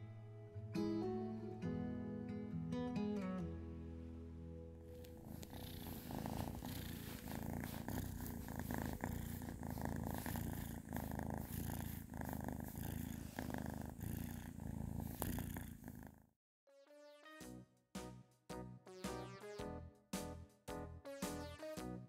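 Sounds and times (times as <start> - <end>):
kitten purring: 4.9 - 16.3.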